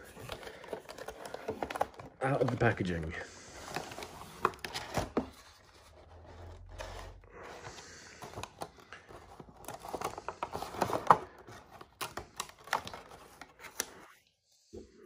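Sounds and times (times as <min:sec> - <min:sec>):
plastic crinkling and crackling: 0:00.0 - 0:07.2.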